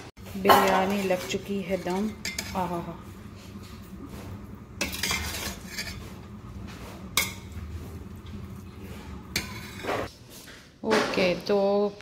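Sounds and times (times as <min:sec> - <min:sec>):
metal spoon scraping rice in pot: 0:00.7 - 0:02.7, 0:04.8 - 0:06.3, 0:09.3 - 0:10.1.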